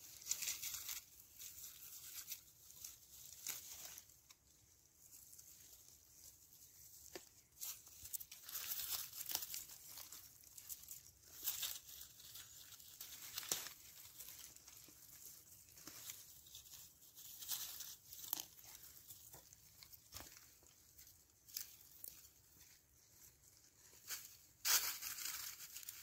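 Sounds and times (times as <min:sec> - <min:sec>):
rustling of foliage and leaf litter: 0:00.0 - 0:26.0
stems snapping and tearing: 0:07.0 - 0:16.2, 0:17.5 - 0:20.7.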